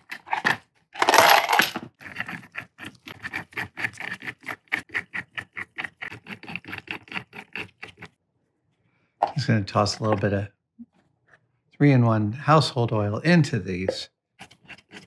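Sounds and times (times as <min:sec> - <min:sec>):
metal studs clinking: 0:00.2 - 0:01.9.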